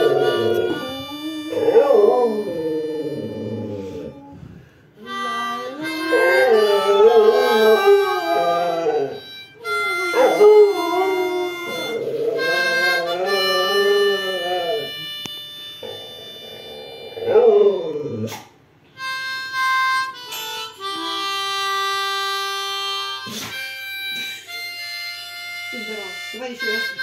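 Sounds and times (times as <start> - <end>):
dog howling: 0.0 - 4.5, 5.8 - 15.0, 15.8 - 18.3
harmonica chords: 0.0 - 18.2, 18.8 - 27.0.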